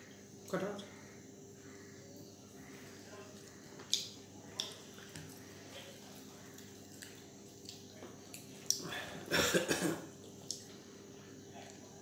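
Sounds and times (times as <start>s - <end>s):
faint steady hum: 0.0s - 12.0s
wet squishes of hands mixing food: 2.5s - 9.0s
lip smacks and chewing: 3.8s - 8.9s, 10.2s - 10.8s.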